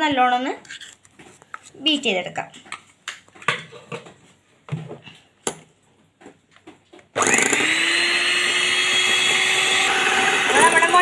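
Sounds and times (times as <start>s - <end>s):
electric hand mixer whisking: 7.2s - 11.0s.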